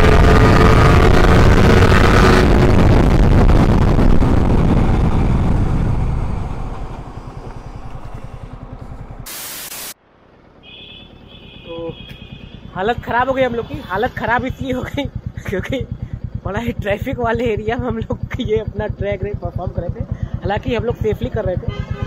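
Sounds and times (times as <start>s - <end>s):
wind rushing over microphone: 0.0s - 9.3s
motorcycle engine: 0.0s - 22.0s
burst of hiss: 9.3s - 10.0s.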